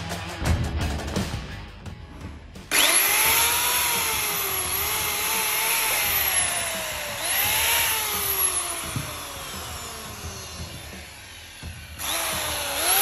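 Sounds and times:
electric saw motor whining: 2.7 - 13.0.

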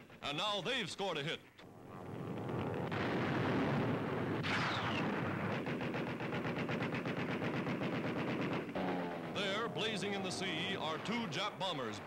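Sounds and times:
rapid automatic gunfire: 2.4 - 12.0.

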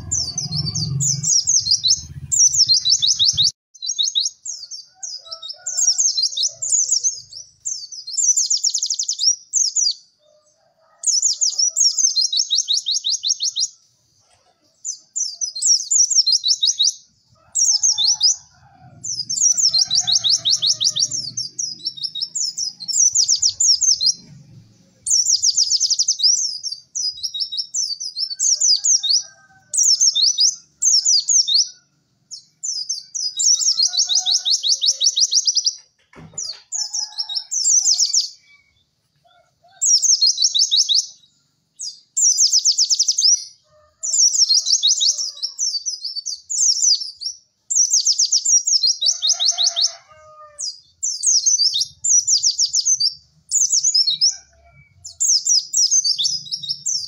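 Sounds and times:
bird singing chattering song: 0.0 - 10.2, 11.0 - 39.0, 39.7 - 57.0.

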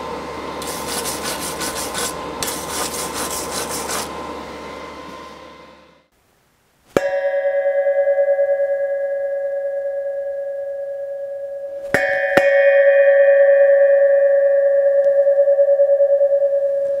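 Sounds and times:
metal pipe struck and ringing: 7.0 - 17.0.

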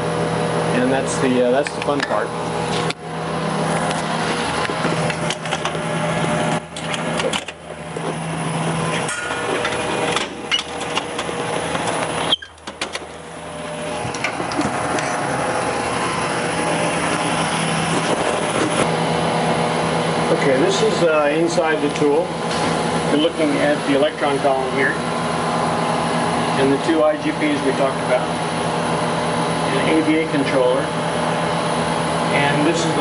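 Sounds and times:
fans humming: 0.0 - 33.0
metal panels clicking and knocking: 6.7 - 7.7, 9.0 - 13.2.

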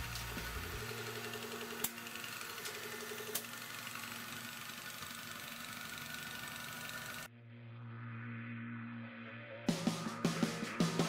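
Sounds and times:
freezer compressor running: 0.0 - 7.3.

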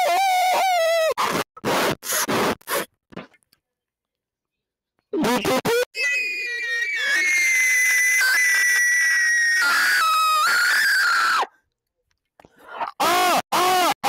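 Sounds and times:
person screaming high-pitched: 0.0 - 1.2, 5.6 - 11.5
rapid vocal whoops: 5.7 - 11.5.

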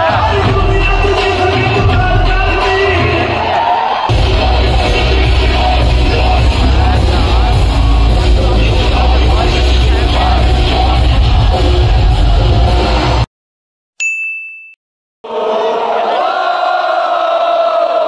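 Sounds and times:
heavy rock music over speakers: 0.0 - 13.2
yelled vocals: 0.0 - 13.2.

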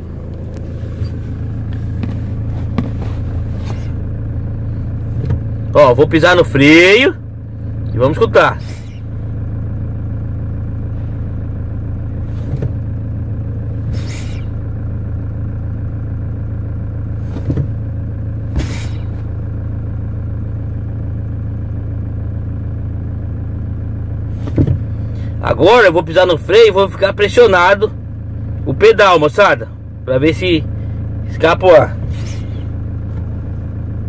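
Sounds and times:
car engine idling: 0.0 - 34.0
brake booster air hissing: 0.4 - 5.4, 8.5 - 9.2, 12.1 - 12.8, 13.7 - 14.7, 17.1 - 17.7, 18.4 - 19.3, 24.2 - 25.4, 32.0 - 33.3.

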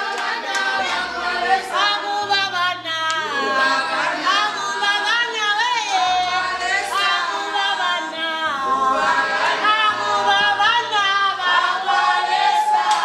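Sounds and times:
group singing a cappella: 0.0 - 13.0.

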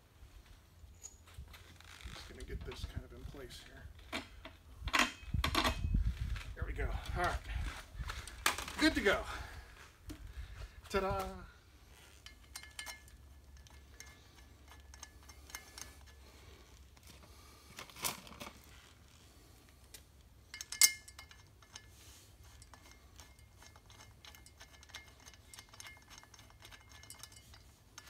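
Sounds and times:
metal bolts clinking: 12.1 - 16.3, 20.4 - 28.0.

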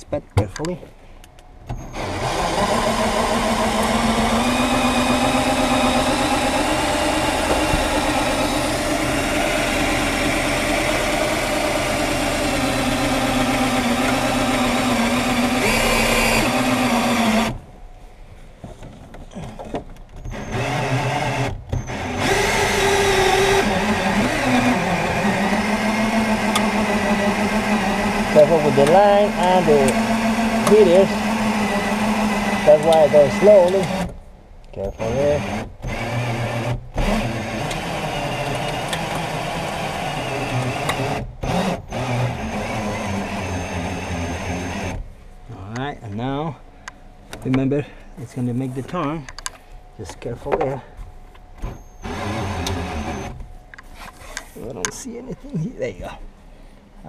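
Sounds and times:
cordless drill running: 1.8 - 17.6, 20.3 - 34.1, 35.0 - 45.0, 51.7 - 53.4.

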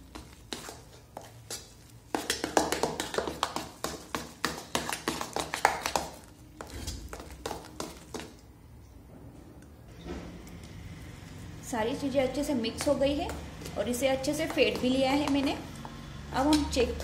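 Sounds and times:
hand beating batter in bowl: 0.0 - 8.5.

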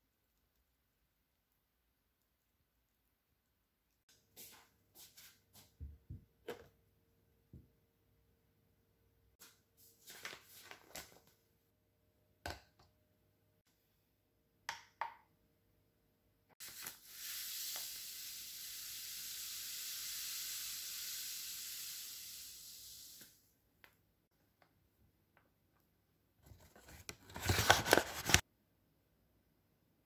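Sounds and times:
sugar pouring into glass bowl: 16.6 - 23.2.

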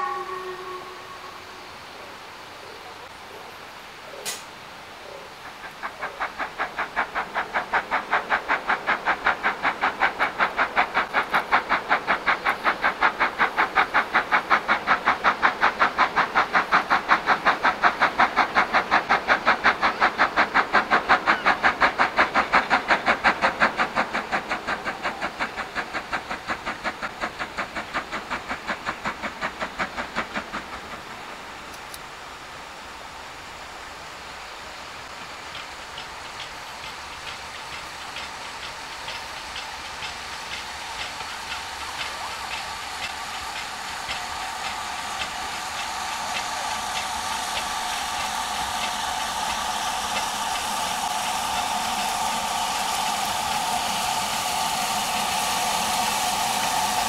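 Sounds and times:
steam locomotive exhaust beats: 0.0 - 2.4, 4.1 - 57.0.

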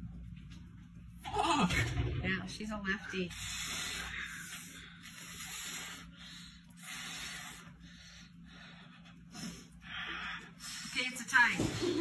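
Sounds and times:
strained breathing: 3.1 - 11.2.

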